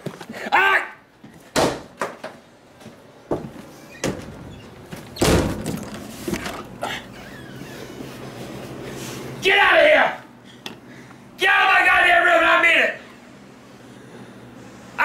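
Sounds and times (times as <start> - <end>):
door banging and knocking: 3.3 - 6.0.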